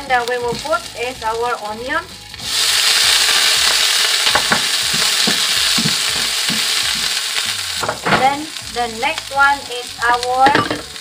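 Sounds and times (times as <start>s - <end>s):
onion and garlic sizzling in oil: 0.0s - 11.0s
spatula scraping and tapping wok: 3.6s - 8.3s.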